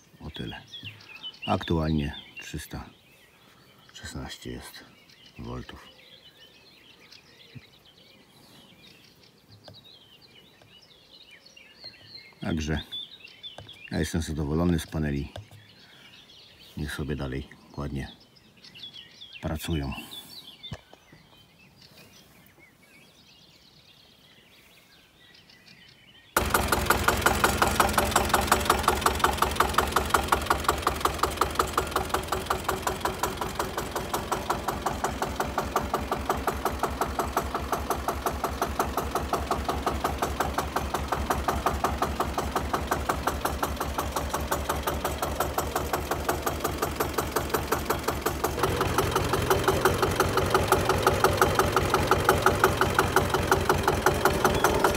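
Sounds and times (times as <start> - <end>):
tractor diesel engine running: 26.4 - 54.9.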